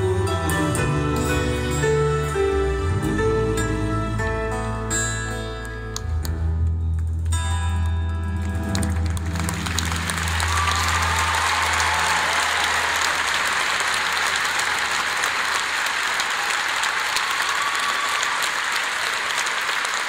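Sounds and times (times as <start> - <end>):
audience applauding: 8.4 - 20.0.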